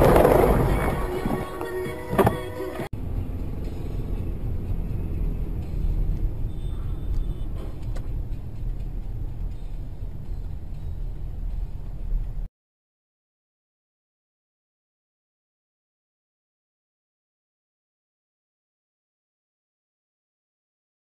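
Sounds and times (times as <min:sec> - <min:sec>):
car engine rumble: 0:00.0 - 0:12.5
road noise: 0:00.0 - 0:12.5.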